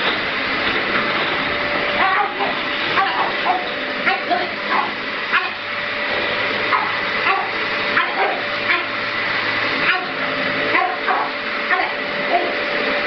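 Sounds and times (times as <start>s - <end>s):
vacuum cleaner running: 0.0s - 13.0s
dog barking: 2.0s - 5.6s, 6.7s - 9.0s, 9.8s - 12.6s.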